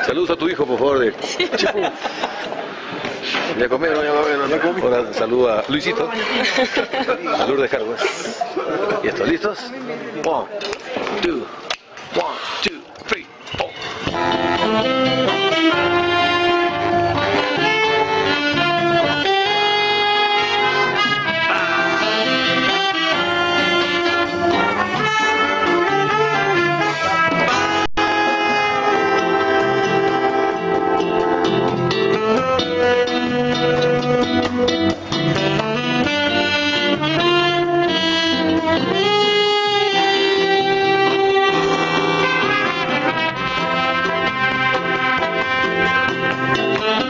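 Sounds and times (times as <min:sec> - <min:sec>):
live dance band playing: 0:13.3 - 0:47.0
saxophones and horns: 0:13.8 - 0:47.0.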